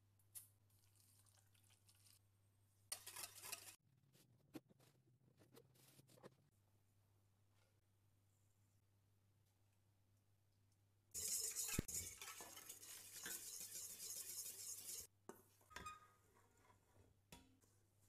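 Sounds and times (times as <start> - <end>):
whisk beating in metal bowl: 11.2 - 15.1.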